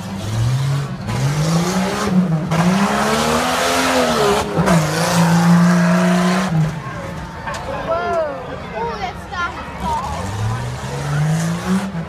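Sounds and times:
truck engine revving hard: 0.0 - 6.8, 9.9 - 12.0.

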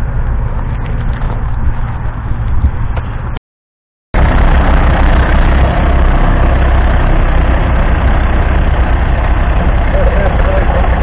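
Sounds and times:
tractor diesel engine running: 0.0 - 3.4, 4.2 - 11.0.

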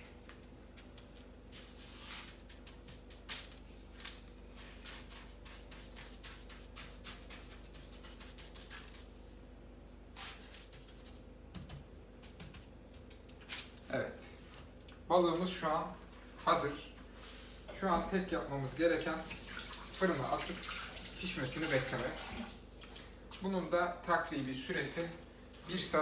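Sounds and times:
hands patting crunchy salt crust: 0.1 - 9.1, 10.2 - 13.8.

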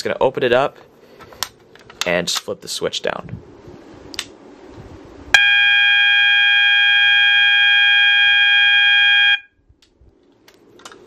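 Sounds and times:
fire alarm horn tone: 5.4 - 9.6.

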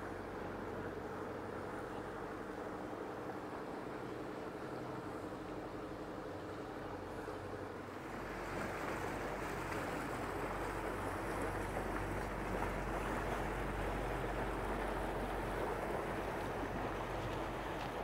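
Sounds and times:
motor boat engine drone: 0.0 - 18.0
propeller wash churning water: 5.2 - 18.0.

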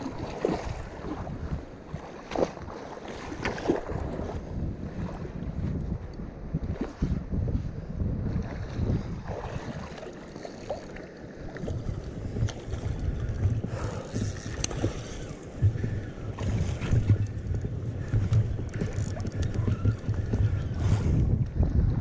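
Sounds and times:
wind noise on microphone: 0.0 - 10.7, 11.5 - 22.0
fishing reel clicking: 14.0 - 14.8.

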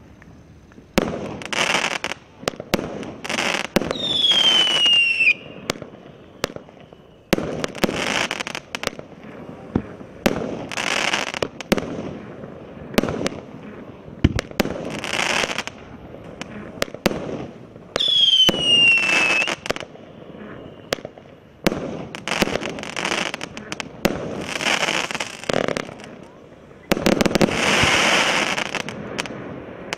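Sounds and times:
crackling firework bursts: 0.0 - 29.9
descending firework whistle: 3.2 - 8.6, 17.9 - 21.2, 26.2 - 29.9
firework launch pops: 14.2 - 26.1, 26.9 - 29.9.

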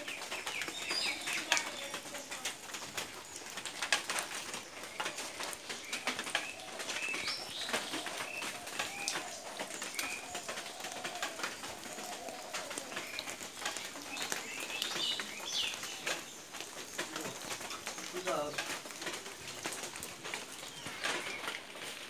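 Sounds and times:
birds chirping: 0.0 - 22.0
lower curved bird calls: 4.6 - 18.5, 20.6 - 21.8.

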